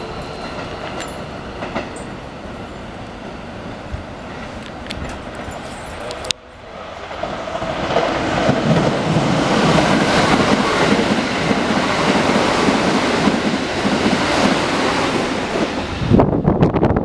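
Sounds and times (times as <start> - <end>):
electric train passing: 0.0 - 17.0.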